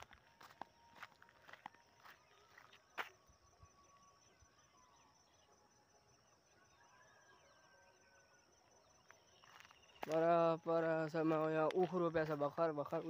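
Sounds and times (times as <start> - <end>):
distant bird chirps: 0.0 - 13.0
insect trill: 0.0 - 13.0.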